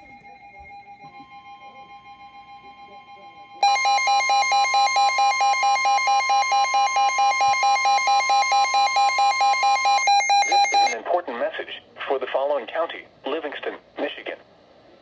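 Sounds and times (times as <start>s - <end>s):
steady alarm tone: 0.0s - 11.0s
rapid pulsing beep: 3.6s - 11.0s.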